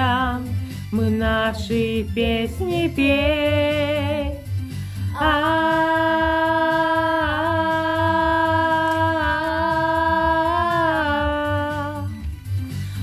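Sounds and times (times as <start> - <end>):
backing track with low beat: 0.0 - 13.0
girl singing long note: 5.2 - 12.0.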